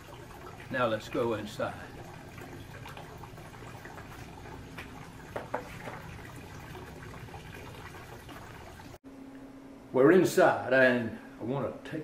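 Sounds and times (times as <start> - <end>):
low hiss and hum: 0.0 - 12.0.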